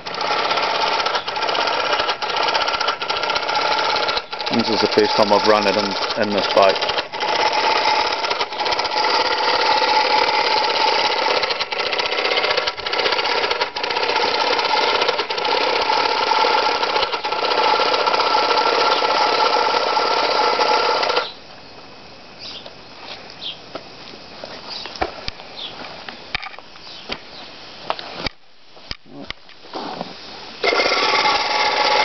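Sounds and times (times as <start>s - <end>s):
model steam engine chattering: 0.0s - 21.3s, 30.6s - 32.0s.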